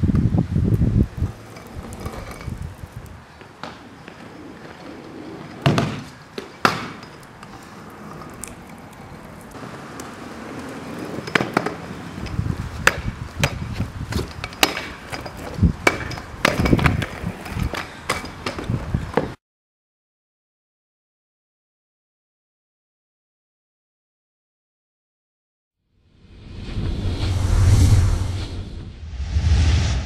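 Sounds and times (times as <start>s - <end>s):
scooter wheels rolling over pavers: 0.2s - 19.4s
scooter landing impacts: 5.4s - 7.5s, 11.1s - 19.4s.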